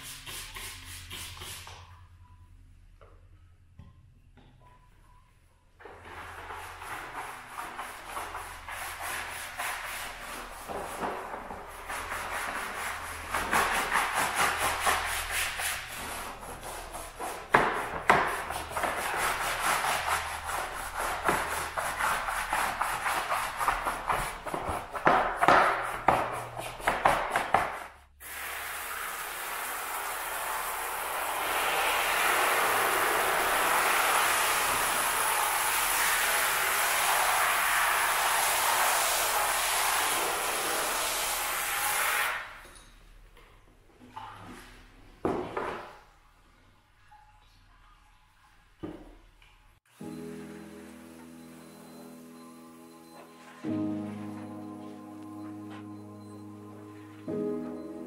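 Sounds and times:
brush scrubbing rubber mat: 6.0 - 27.9
water spraying from hose: 28.2 - 42.5.

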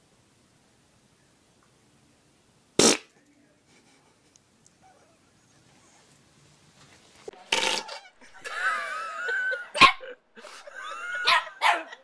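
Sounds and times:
dog barking: 9.8 - 10.1, 11.2 - 12.0.

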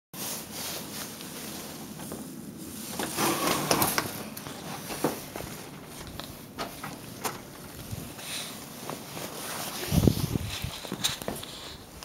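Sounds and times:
metal door scraping on snow: 3.0 - 4.3.

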